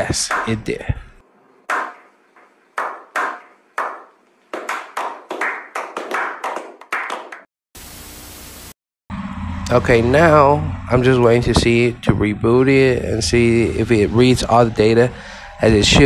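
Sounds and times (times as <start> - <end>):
people clapping: 2.8 - 7.5
steady hiss: 7.8 - 8.8.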